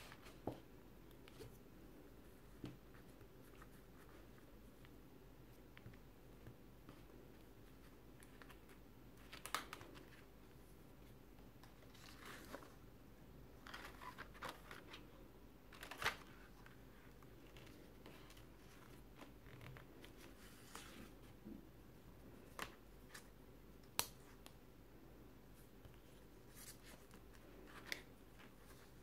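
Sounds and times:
soft taps of pages: 2.5s - 3.7s
paper pages rustling: 11.7s - 12.8s, 13.6s - 15.1s, 15.7s - 16.8s.

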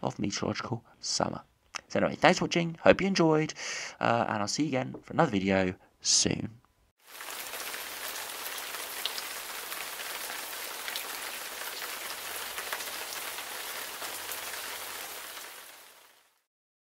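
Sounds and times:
rain pattering on hard surfaces: 7.0s - 16.5s.

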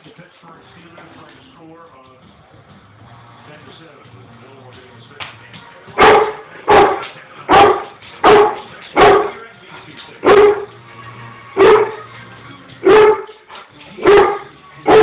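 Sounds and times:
dog barking: 6.0s - 9.4s, 10.2s - 10.8s, 11.6s - 12.1s, 12.8s - 13.4s, 14.0s - 15.0s.

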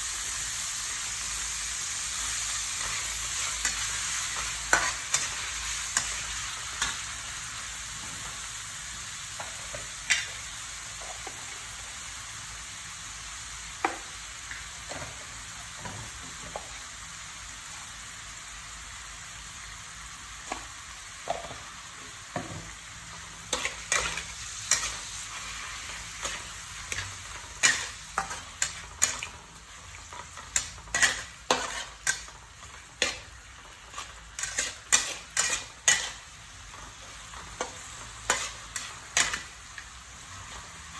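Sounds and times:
meat sizzling in a frying pan: 0.0s - 40.9s
metal spatula scraping a pan: 23.5s - 29.4s, 30.0s - 36.4s, 37.1s - 39.5s.

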